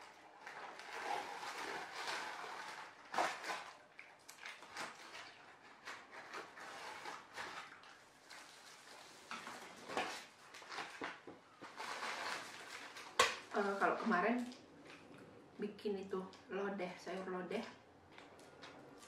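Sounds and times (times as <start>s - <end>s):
paper rustling and crackling: 0.3s - 14.5s.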